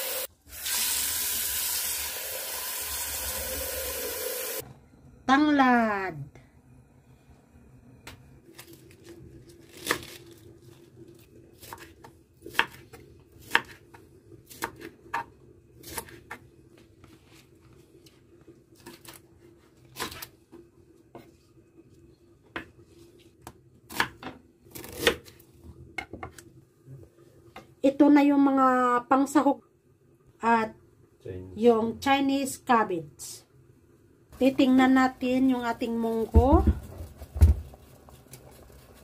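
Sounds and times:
knife chopping on wooden board: 11.6 - 13.9.

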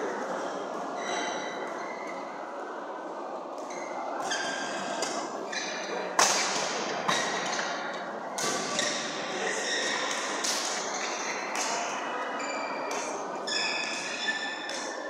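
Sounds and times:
shoes squeaking on court floor: 3.7 - 6.0, 8.4 - 15.0
racket hitting shuttlecock: 6.2 - 7.8, 10.1 - 11.9.

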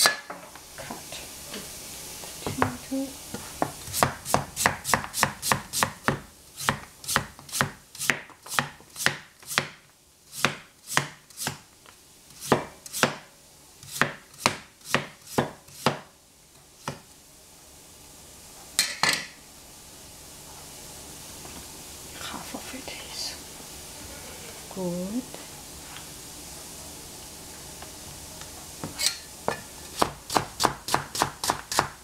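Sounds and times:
knife slicing potato: 3.6 - 11.6, 12.4 - 13.2, 30.0 - 32.0.

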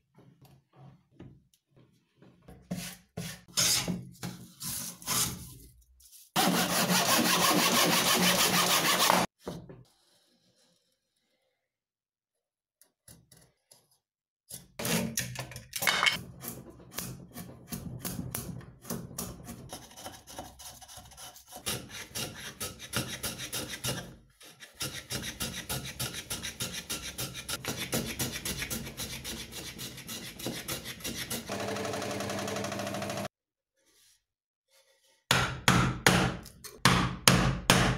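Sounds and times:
hand plane scraping wood: 6.4 - 9.3, 19.7 - 31.5
scroll saw humming: 31.5 - 33.3.

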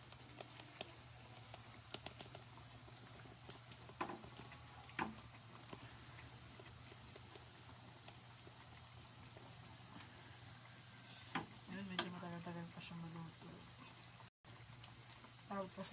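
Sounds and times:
food frying in oil: 0.0 - 15.9.

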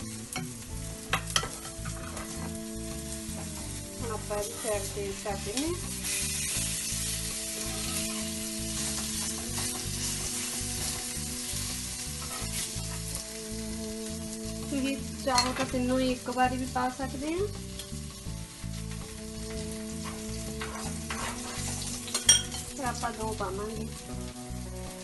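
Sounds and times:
pancakes sizzling in oil: 0.0 - 25.0
spatula scraping and tapping: 1.1 - 2.6, 12.2 - 13.0, 20.0 - 22.7.

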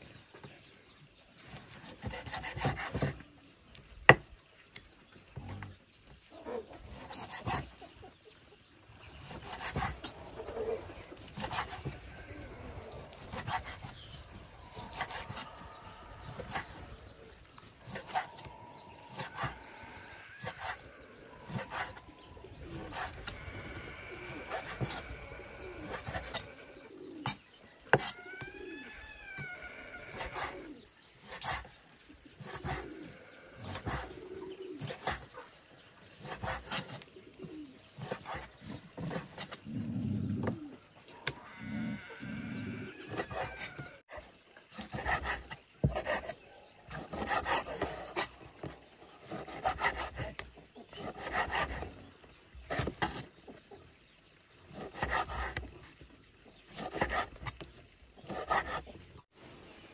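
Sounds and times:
birds chirping: 0.0 - 59.9
pigeons cooing: 6.3 - 8.2, 9.0 - 53.4.

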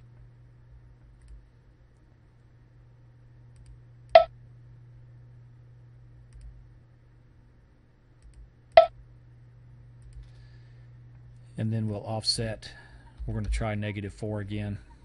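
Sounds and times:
low electrical hum: 0.0 - 15.0
computer mouse clicks: 3.6 - 3.8, 8.2 - 8.8.

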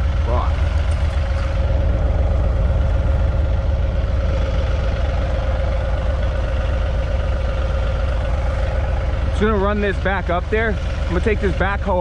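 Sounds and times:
tractor diesel engine idling: 0.0 - 12.0.

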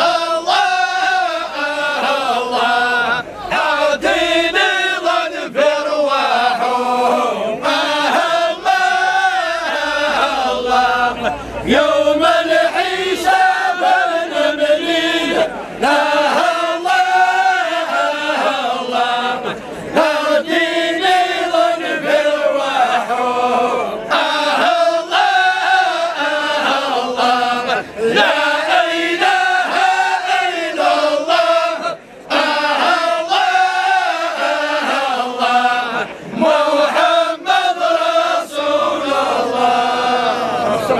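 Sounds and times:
men chanting together: 0.0 - 40.9.

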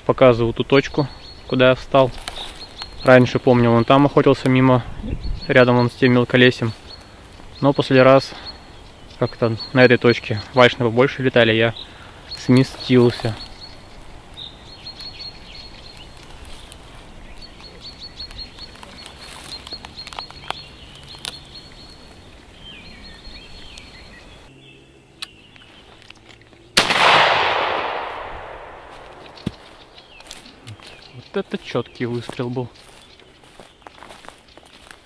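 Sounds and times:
shotgun shot echoing: 26.8 - 29.7.

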